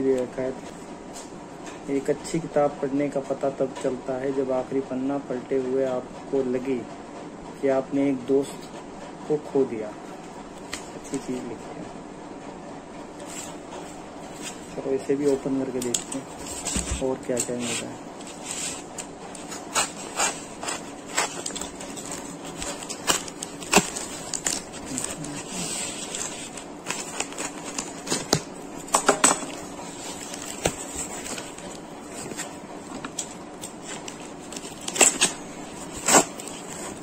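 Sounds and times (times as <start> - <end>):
paper packaging rustling: 13.2 - 37.0.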